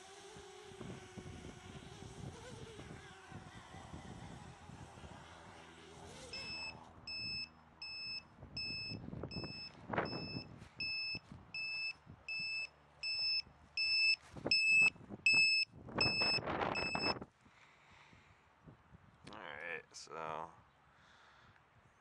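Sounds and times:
faint motor whine: 0:00.0 - 0:17.2
high alarm beeps: 0:06.4 - 0:17.2.

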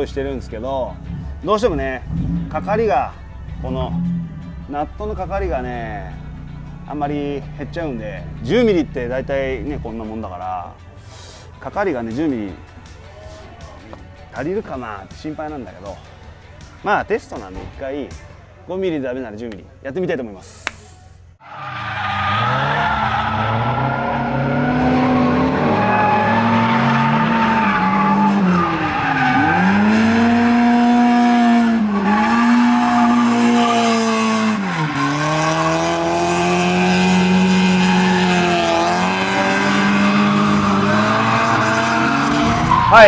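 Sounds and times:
tyres squealing: 0:21.5 - 0:30.8
car engine at high revs: 0:23.4 - 0:42.7.

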